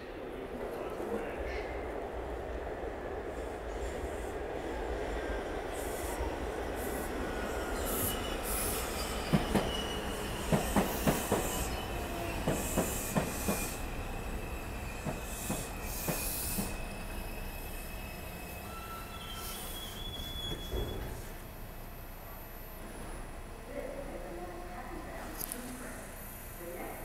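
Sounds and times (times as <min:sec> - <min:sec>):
subway train rumble: 0:00.0 - 0:27.0
high wheel squeal: 0:07.8 - 0:10.5, 0:14.9 - 0:21.1.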